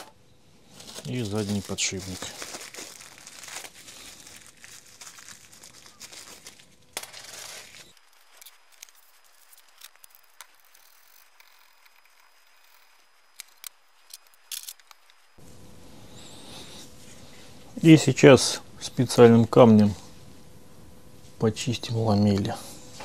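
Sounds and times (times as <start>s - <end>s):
plastic bag crinkling: 0.6s - 15.4s.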